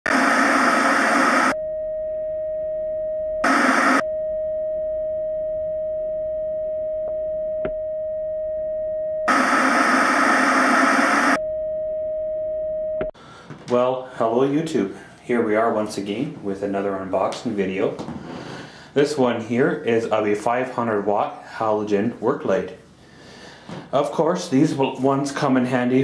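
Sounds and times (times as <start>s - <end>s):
television static hiss: 0.1s - 1.6s, 3.4s - 4.0s, 9.3s - 11.4s.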